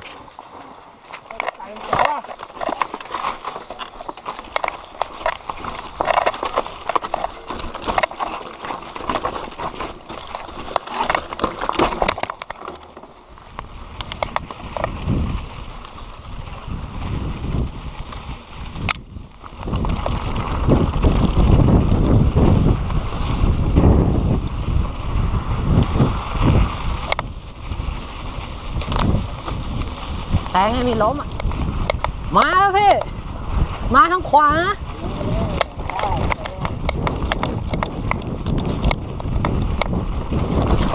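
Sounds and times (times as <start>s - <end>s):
bike rattling over dirt trail: 0.0s - 40.9s
wind on microphone: 13.3s - 40.9s.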